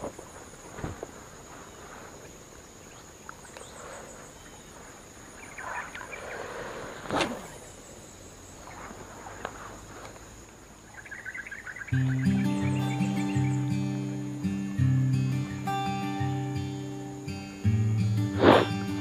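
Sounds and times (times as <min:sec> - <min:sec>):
footsteps through long grass: 0:00.0 - 0:03.0, 0:08.6 - 0:10.6
high-pitched insect drone: 0:11.0 - 0:19.0.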